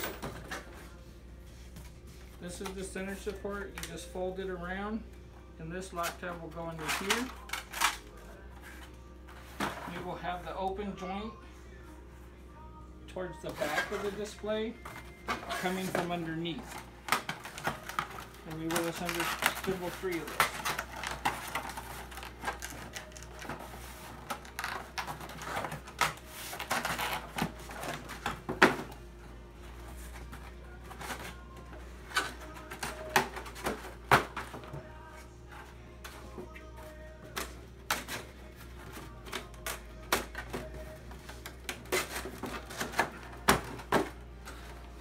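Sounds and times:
cardboard rustling and scraping: 0:13.4 - 0:28.9.

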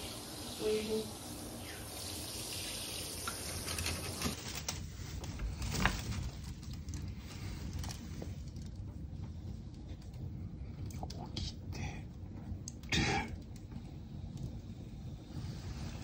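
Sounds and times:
shower spraying on tiled floor: 0:00.0 - 0:08.5, 0:14.0 - 0:16.0.

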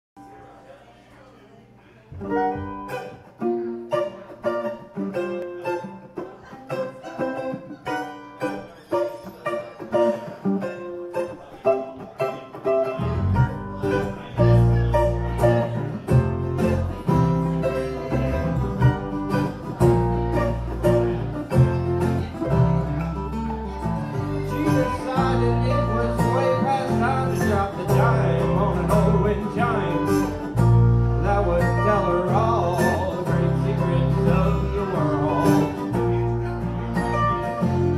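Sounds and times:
plucked strings: 0:02.1 - 0:37.9
acoustic string band playing: 0:02.2 - 0:37.9
bass notes: 0:13.0 - 0:37.9.

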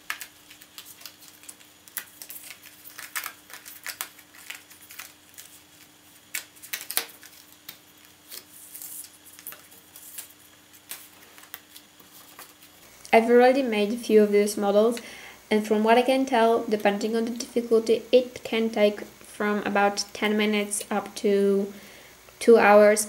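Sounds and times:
paper rustling: 0:00.0 - 0:12.9
cardboard pieces snapping out: 0:06.3 - 0:08.5.

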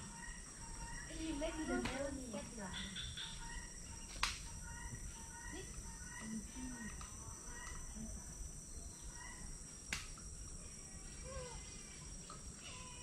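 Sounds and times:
birds chirping: 0:00.0 - 0:07.9, 0:08.5 - 0:09.7.

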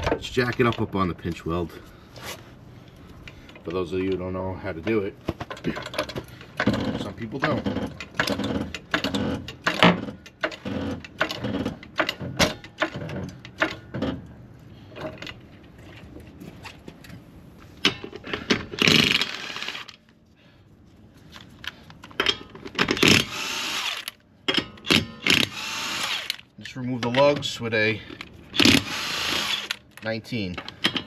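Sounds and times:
floor jack clanks and creaks: 0:04.9 - 0:17.1, 0:30.6 - 0:31.0
impact wrench bursts: 0:18.8 - 0:19.9, 0:22.8 - 0:24.2, 0:24.8 - 0:26.5, 0:28.5 - 0:29.8.

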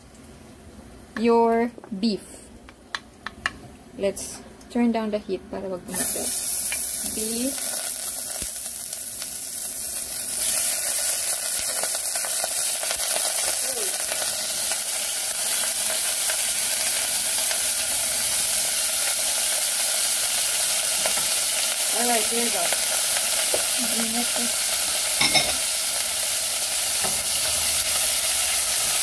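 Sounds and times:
meat sizzling in oil: 0:06.0 - 0:29.0.

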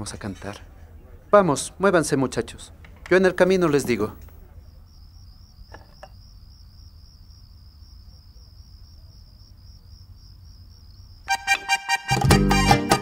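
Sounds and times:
cricket chirping: 0:03.1 - 0:11.6
music with strummed guitars: 0:11.3 - 0:13.0.

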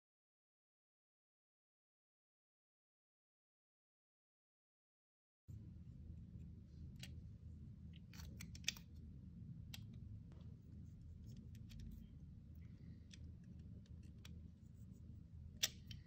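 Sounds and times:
low steady hum: 0:05.5 - 0:16.0.

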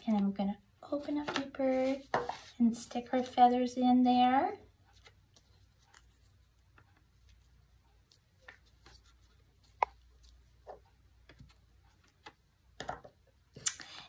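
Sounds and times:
paper rustling on a table: 0:01.2 - 0:03.4.

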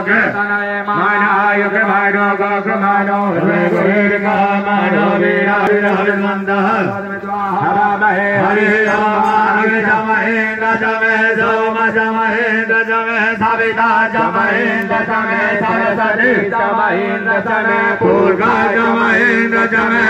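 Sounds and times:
group chanting: 0:13.2 - 0:20.0.

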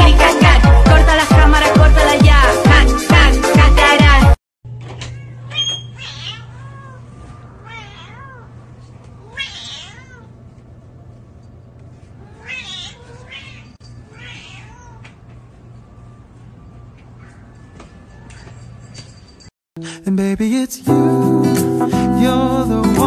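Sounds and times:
cat meowing: 0:05.1 - 0:08.6, 0:09.2 - 0:10.4, 0:12.2 - 0:15.2.

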